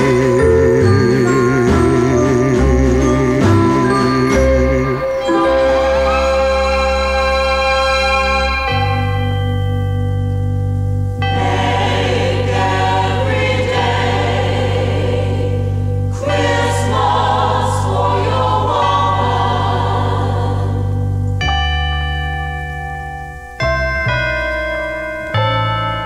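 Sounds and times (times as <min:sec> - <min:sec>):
choir singing: 0:00.0 - 0:09.3, 0:11.2 - 0:21.2.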